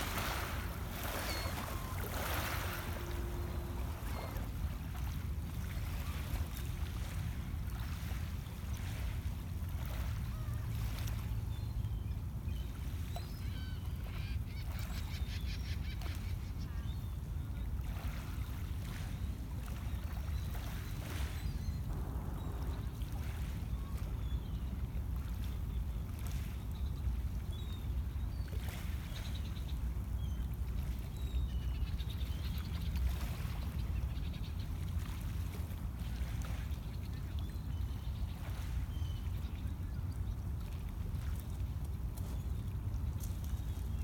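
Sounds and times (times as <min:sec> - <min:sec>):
small waves lapping on pebbles: 0:00.0 - 0:05.2
steady low rumble: 0:21.9 - 0:24.1.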